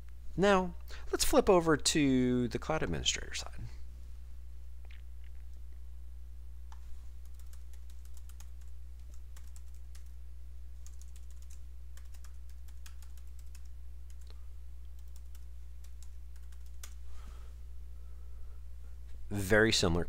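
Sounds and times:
steady low hum: 0:00.0 - 0:20.0
keyboard typing: 0:06.7 - 0:10.2, 0:10.8 - 0:17.0.

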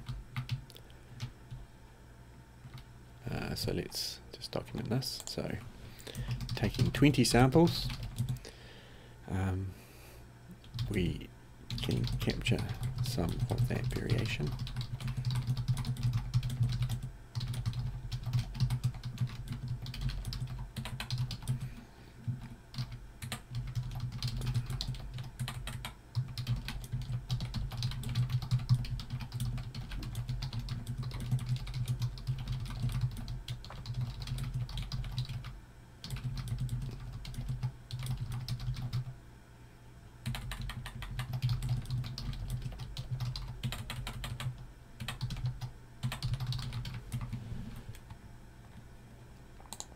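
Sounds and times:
typing on a computer keyboard: 0:00.0 - 0:00.6, 0:06.2 - 0:07.0, 0:07.6 - 0:08.4, 0:10.6 - 0:11.0, 0:11.7 - 0:21.7, 0:22.3 - 0:39.1, 0:40.2 - 0:47.4, 0:49.7 - 0:49.9
steady low hum: 0:00.0 - 0:49.9.

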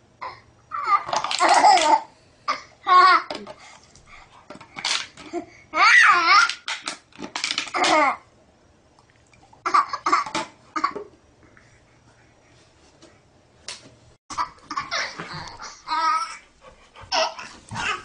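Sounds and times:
baby laughing: 0:14.3 - 0:16.4, 0:17.0 - 0:18.0.

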